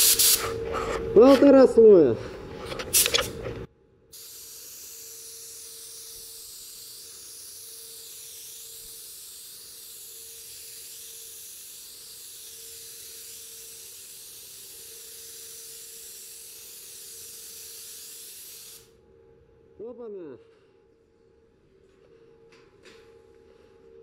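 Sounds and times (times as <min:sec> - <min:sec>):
spray gun hissing: 0:00.0 - 0:00.5, 0:04.2 - 0:18.9.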